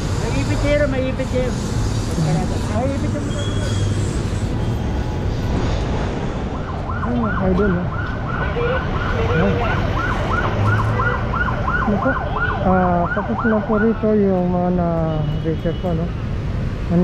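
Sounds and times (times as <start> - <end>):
siren yelping: 6.5 - 14.1.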